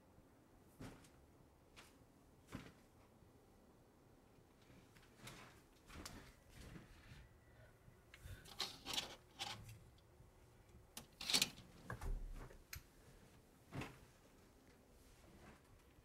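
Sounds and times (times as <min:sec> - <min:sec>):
person moving on mattress: 0:13.4 - 0:14.4.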